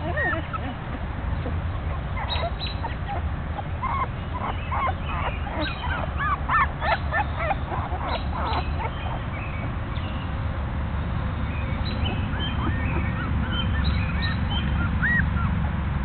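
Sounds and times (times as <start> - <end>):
puppy whimpering and squealing: 0.0 - 9.3, 12.3 - 15.6.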